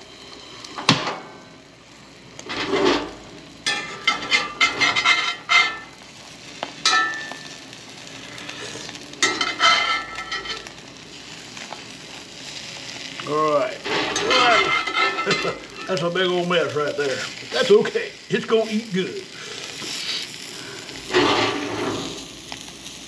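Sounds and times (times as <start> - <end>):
eggs sizzling: 0.0 - 23.0
metal spatula scraping a skillet: 2.4 - 6.0, 6.8 - 7.6, 9.2 - 10.7, 13.8 - 16.1, 21.1 - 22.2.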